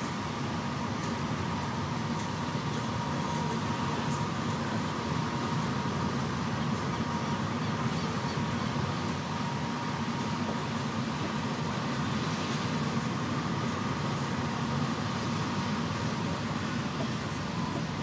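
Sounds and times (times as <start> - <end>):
thin steady whine: 0.0 - 18.0
vehicle cabin rumble: 7.0 - 18.0.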